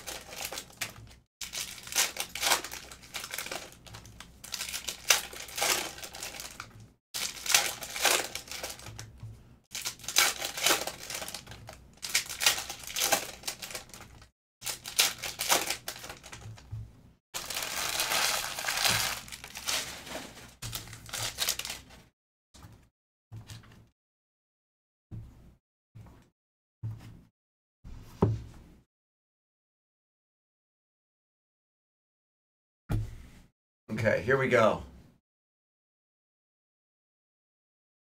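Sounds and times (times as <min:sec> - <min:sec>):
foil wrappers tearing and crinkling: 0:00.0 - 0:09.1, 0:09.7 - 0:16.4, 0:17.4 - 0:22.0.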